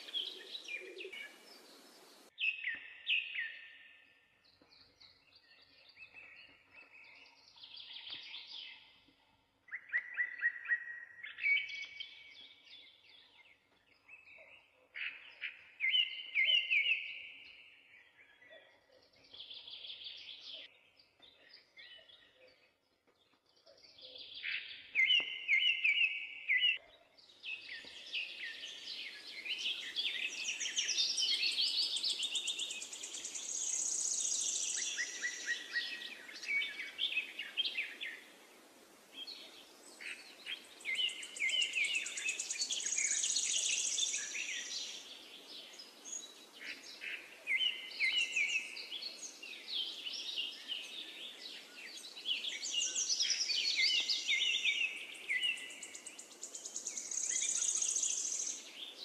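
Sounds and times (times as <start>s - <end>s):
birds chirping and warbling: 0.0s - 59.0s
steady hiss: 1.2s - 2.3s.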